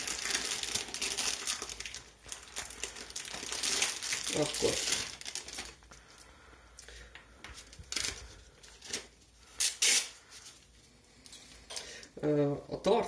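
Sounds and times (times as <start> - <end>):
plastic crinkling rustles: 0.0 - 6.3, 7.4 - 10.8.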